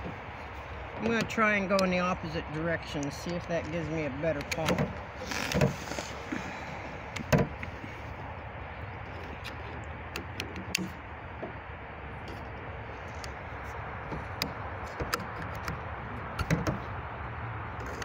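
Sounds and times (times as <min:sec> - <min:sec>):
light metallic clicks and taps: 0:00.9 - 0:05.0.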